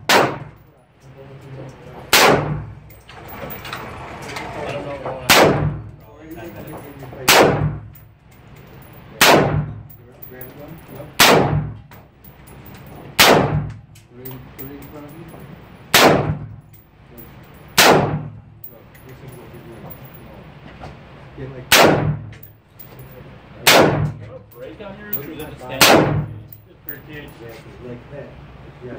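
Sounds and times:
rifle shots echoing indoors: 0.0 - 0.6, 2.1 - 2.8, 5.3 - 5.9, 7.2 - 7.9, 9.2 - 9.8, 11.1 - 11.8, 13.1 - 13.8, 15.9 - 16.6, 17.7 - 18.4, 21.7 - 22.5, 23.6 - 24.2, 25.8 - 26.6.

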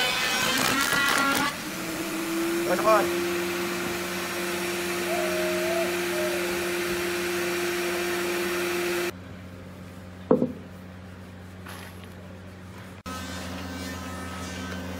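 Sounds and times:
machine motor hum and whine: 0.0 - 10.2.

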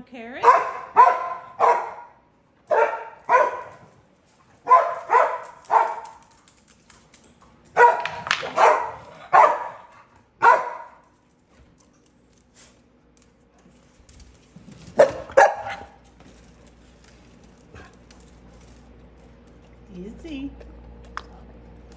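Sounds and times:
dog barking loudly: 0.4 - 3.8, 4.6 - 6.2, 7.8 - 11.0, 15.0 - 16.0.

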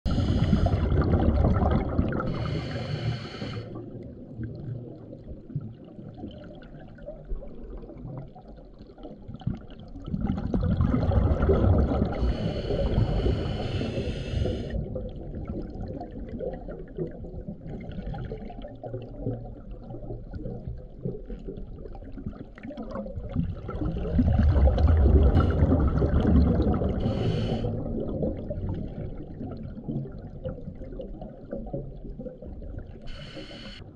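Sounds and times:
exhaled bubbles rumbling: 0.0 - 33.9
regulator hiss: 2.4 - 3.7, 12.2 - 14.8, 27.0 - 27.7, 33.1 - 33.9.

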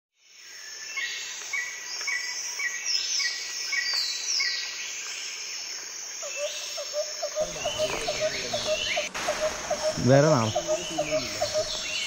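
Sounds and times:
insects shrilling: 5.5 - 12.0
falling calls: 6.2 - 12.0.

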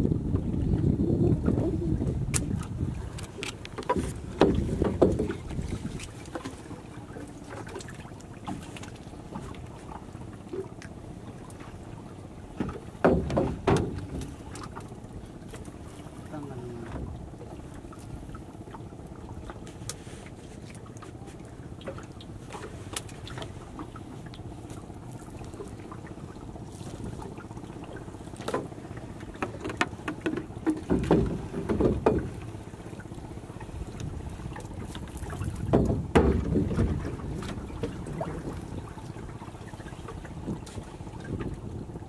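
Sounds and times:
river noise: 0.0 - 42.0
wind: 0.0 - 42.0
net knocking and rustling on wooden hull: 2.5 - 9.5, 12.5 - 15.7, 28.3 - 32.6, 33.8 - 38.7.

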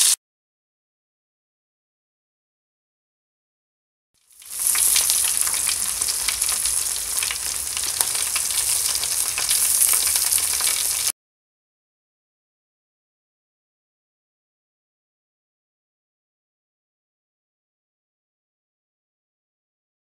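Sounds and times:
steaks sizzling on a grill: 4.3 - 11.1.

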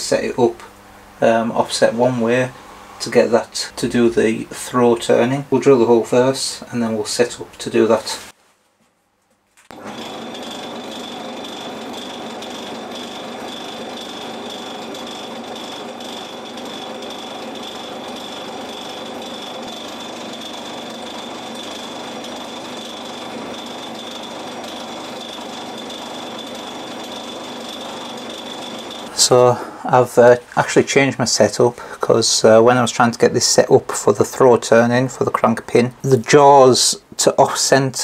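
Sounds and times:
drill boring into steel: 9.7 - 29.6
lathe high whine: 9.7 - 30.4.

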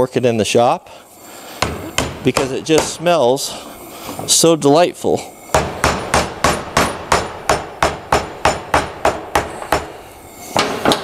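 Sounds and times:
hatchet hammering on screwdriver: 1.6 - 3.1, 5.5 - 9.9.

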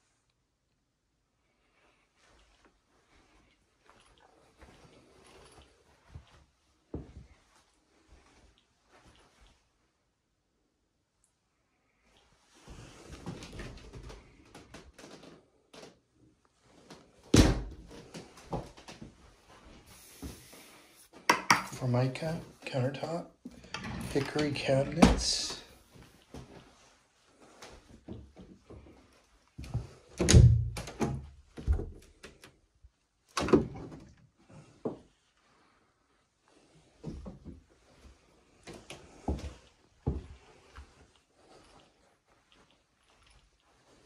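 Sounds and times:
door thunks and knocks: 30.2 - 31.2.

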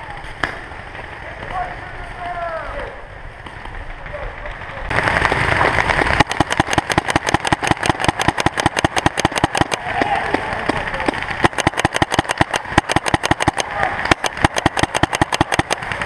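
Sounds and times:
paintball marker firing rapidly: 5.9 - 16.0.

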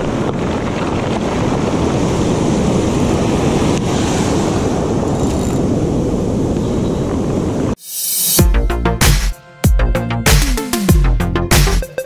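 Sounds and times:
wind buffeting microphone: 0.0 - 7.8
ocean surf washing: 0.0 - 7.9.

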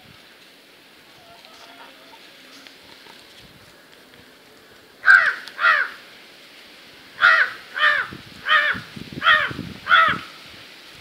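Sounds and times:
crow cawing: 5.0 - 6.0, 7.2 - 10.3.

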